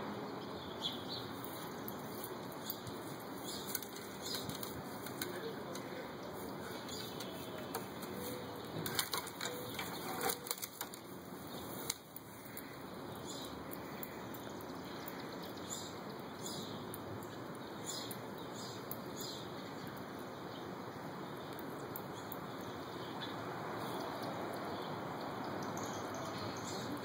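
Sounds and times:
rustling grass and leaves: 0.5 - 16.0.

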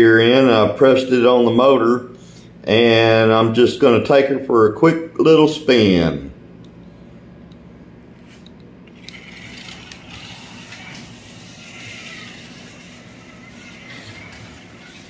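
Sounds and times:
slot car motor whine: 8.8 - 15.0.

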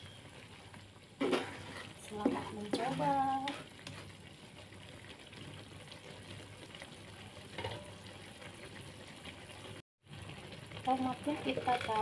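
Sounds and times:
stir-fry sizzling in a pan: 0.0 - 12.0.

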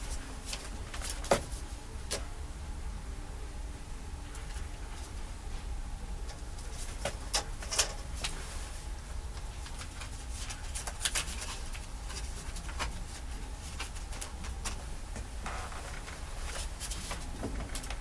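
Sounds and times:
newspaper rustling and crackling: 0.0 - 1.7, 9.4 - 14.9, 15.8 - 18.0
steady low hum: 0.0 - 18.0.

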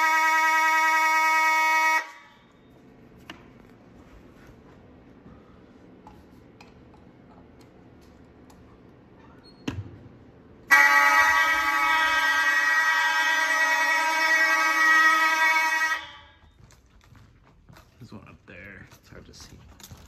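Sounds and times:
fire alarm horn buzzing: 0.0 - 2.8, 10.7 - 16.6.

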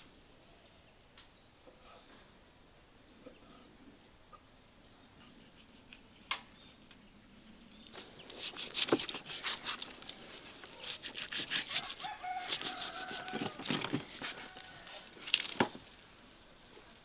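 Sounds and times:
knife scraping meat off bone: 8.3 - 15.6.

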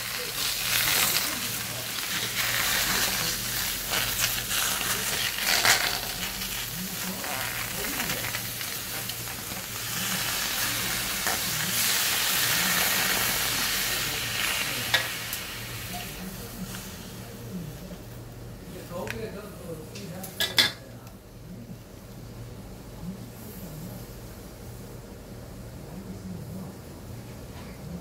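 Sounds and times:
food sizzling in pan: 0.0 - 17.5.

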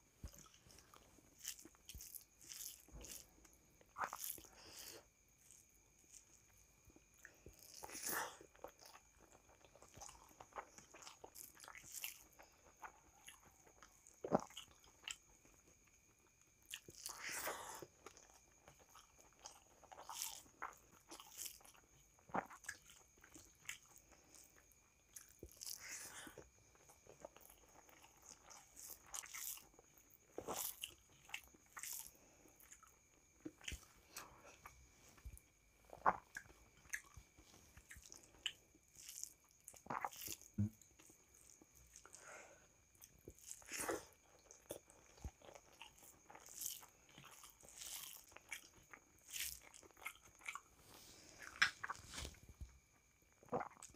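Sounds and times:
person chewing with wet smacks: 0.2 - 42.2, 42.8 - 53.9.

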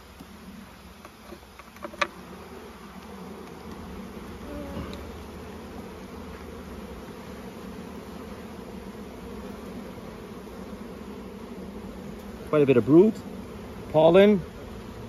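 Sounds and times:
honeybee swarm buzzing: 0.0 - 15.0
hive tool clicking on wooden frames: 0.1 - 2.3, 2.9 - 6.6, 12.1 - 12.4.

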